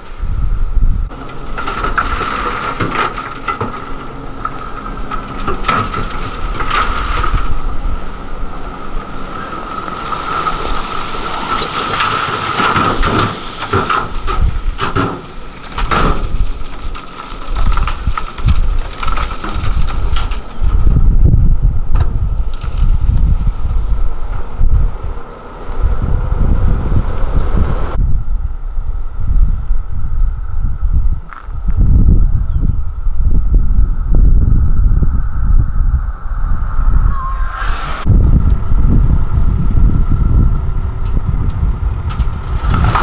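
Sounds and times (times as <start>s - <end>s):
truck high whine: 0.0s - 16.2s, 32.8s - 43.0s
soil and rocks crashing and rumbling: 0.8s - 27.4s, 38.1s - 43.0s.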